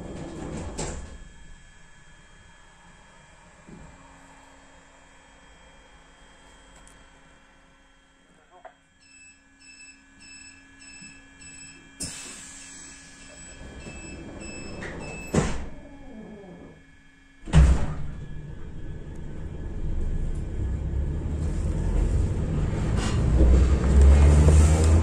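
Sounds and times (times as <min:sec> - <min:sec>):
traction motors rumbling: 0:12.8 - 0:25.0
train doors banging shut: 0:13.6 - 0:15.8, 0:17.5 - 0:18.4.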